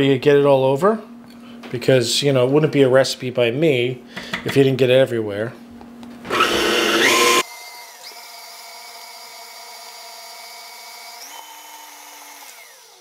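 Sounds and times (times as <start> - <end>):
stand mixer motor whining: 6.3 - 13.0.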